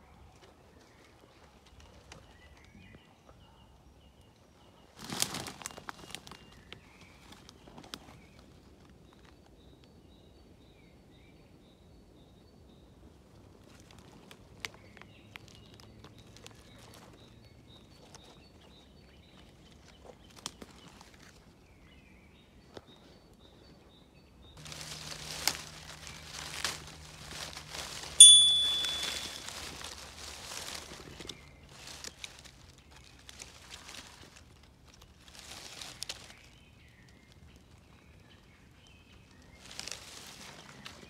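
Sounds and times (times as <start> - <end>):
rustling of dry leaves and twigs: 0.0 - 3.2, 4.1 - 10.2, 13.1 - 41.0
bright ding: 28.2 - 29.5.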